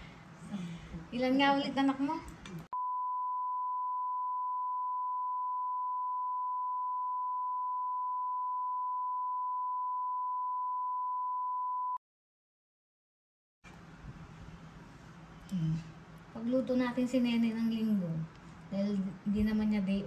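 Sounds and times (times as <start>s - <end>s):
steady bleep tone: 2.8s - 12.0s.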